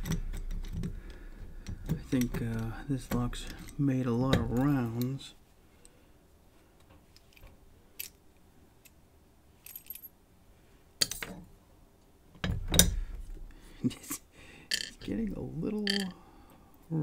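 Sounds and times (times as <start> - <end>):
metal lock parts clinking: 0.0 - 5.2, 7.1 - 8.2, 9.6 - 10.2, 12.4 - 13.0, 14.7 - 16.2.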